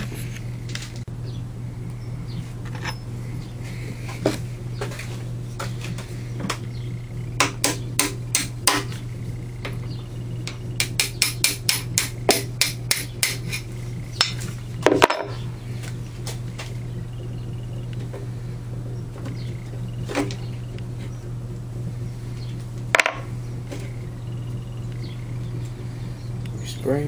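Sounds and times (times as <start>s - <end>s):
hammer tapping steel punch: 7.4s - 8.9s, 10.4s - 13.6s.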